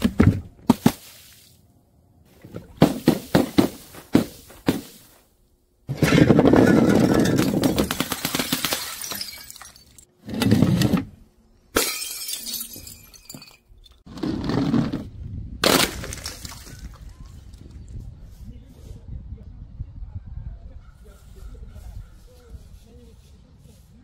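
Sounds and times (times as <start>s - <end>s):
bottles smashing on paving: 5.9s - 10.1s, 11.8s - 13.7s, 15.6s - 17.0s.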